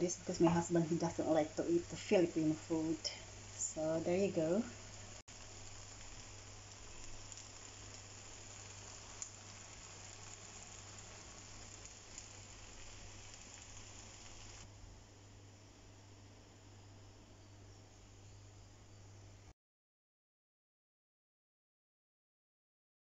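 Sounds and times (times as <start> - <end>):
food sizzling in a wok: 0.0 - 15.5.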